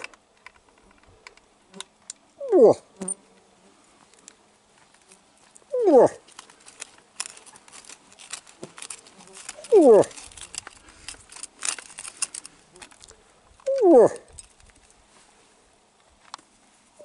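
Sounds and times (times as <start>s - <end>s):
moose grunts: 2.4s - 3.0s, 5.7s - 6.2s, 9.6s - 10.2s, 13.7s - 14.3s.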